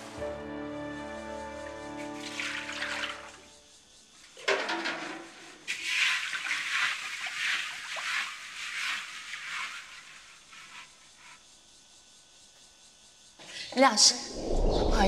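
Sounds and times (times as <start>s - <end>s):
water splashing in a wok: 1.9s - 3.5s, 4.4s - 11.4s.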